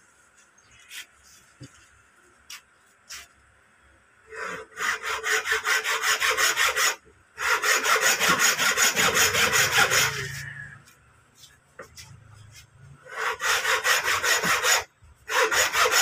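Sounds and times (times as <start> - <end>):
file scraping metal: 4.3 - 16.0.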